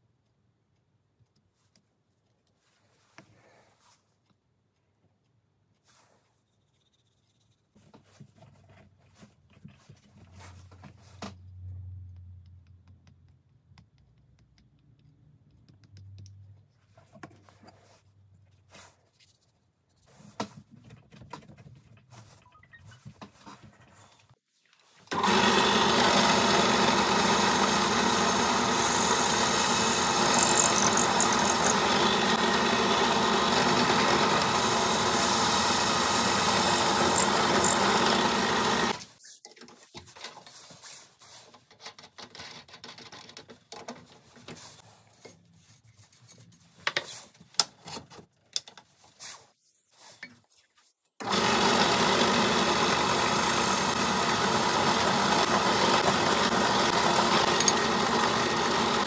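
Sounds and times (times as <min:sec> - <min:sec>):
drill press motor running: 0:25.1 - 0:39.0, 0:51.2 - 0:59.0
clicks and taps on drill chuck: 0:57.5 - 0:57.8.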